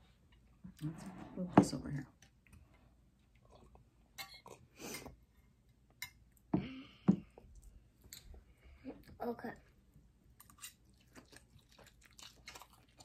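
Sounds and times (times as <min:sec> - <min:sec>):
chewing: 0:03.1 - 0:04.7, 0:10.3 - 0:13.0.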